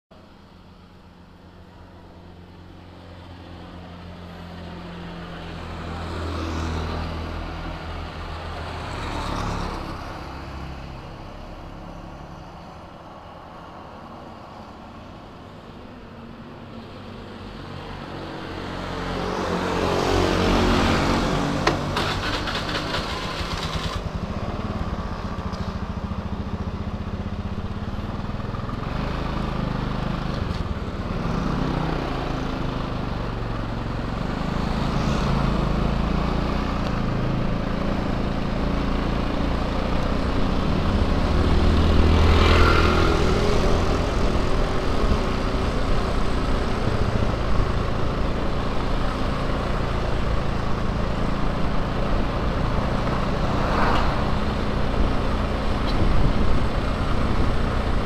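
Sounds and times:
vehicles passing: 0.1s - 58.0s
motor scooter engine running: 21.4s - 31.6s.

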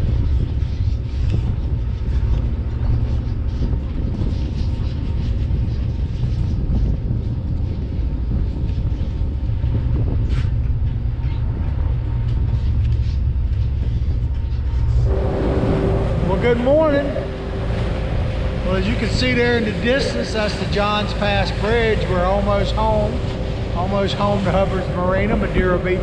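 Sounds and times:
boat engines droning: 7.8s - 26.0s.

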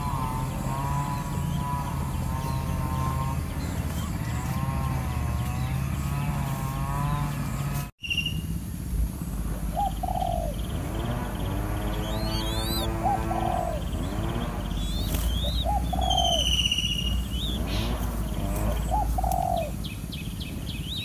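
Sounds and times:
low motor hum: 0.0s - 21.0s
short bird calls: 9.7s - 20.0s.

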